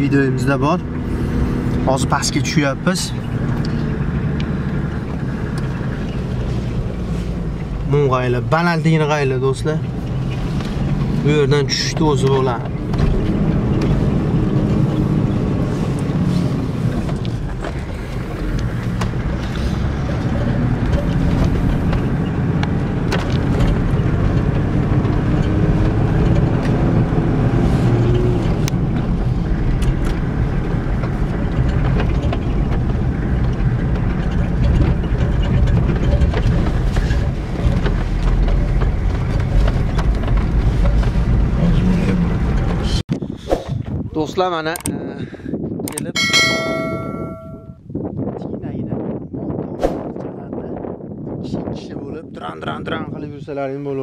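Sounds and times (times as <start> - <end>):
car engine running: 0.0 - 43.0
tyres rumbling over dirt: 0.0 - 43.0.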